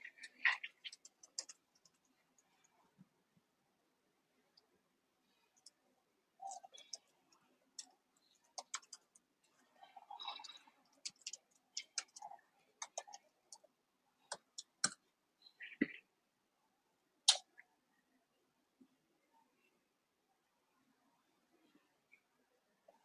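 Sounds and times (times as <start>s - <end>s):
computer keyboard typing: 0.0s - 2.1s, 6.5s - 7.1s, 7.8s - 9.2s, 10.2s - 13.7s, 14.3s - 15.0s.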